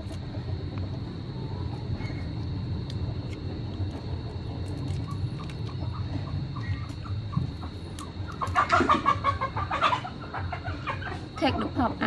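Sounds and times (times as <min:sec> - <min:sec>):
low steady rumble: 0:00.0 - 0:12.0
chicken clucking: 0:05.4 - 0:11.5.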